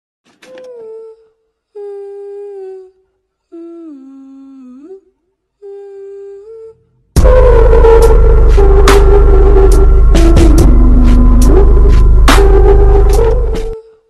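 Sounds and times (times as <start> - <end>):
person humming a slow tune: 0.4 - 14.0
loud music with heavy bass: 7.2 - 13.8.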